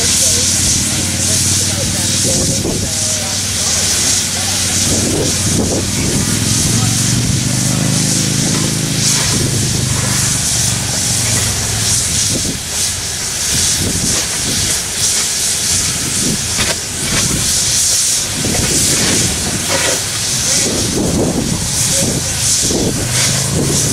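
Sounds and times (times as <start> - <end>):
low hum: 0.0 - 13.3
steam locomotive hissing steam: 0.0 - 23.9.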